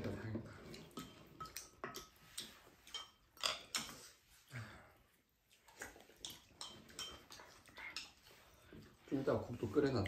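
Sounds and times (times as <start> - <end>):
utensils clinking on ceramic bowls: 0.8 - 4.2, 6.2 - 8.4.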